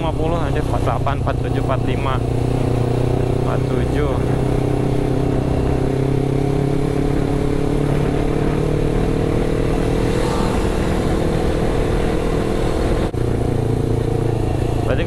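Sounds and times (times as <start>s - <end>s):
motorcycle engine cruising: 0.0s - 15.0s
road noise: 0.0s - 15.0s
wind noise: 4.2s - 14.9s.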